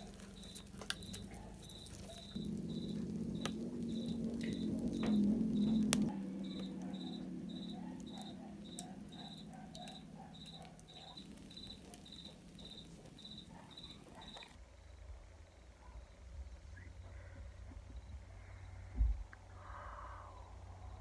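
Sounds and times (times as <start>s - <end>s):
wood fire crackling and popping: 0.0s - 14.6s
cricket chirping: 0.0s - 17.4s, 18.0s - 21.0s
low hum: 0.0s - 21.0s.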